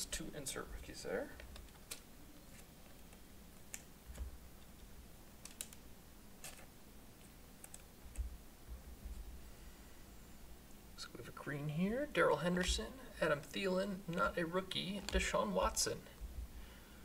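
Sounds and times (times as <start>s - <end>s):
faint clicks and soft knocks: 6.5s - 9.4s.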